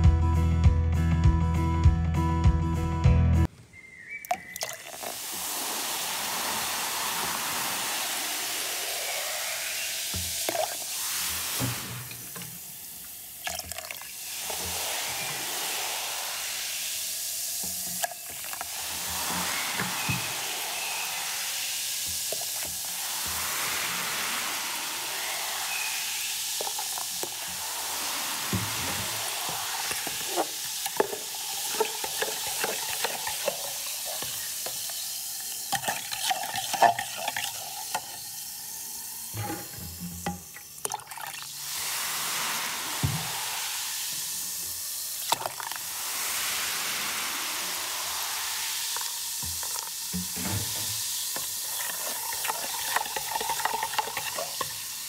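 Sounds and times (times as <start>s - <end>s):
baking soda and vinegar fizzing: 3.8s - 55.0s
tool scraping and knocking container: 28.5s - 38.2s, 39.4s - 40.7s, 49.0s - 54.9s.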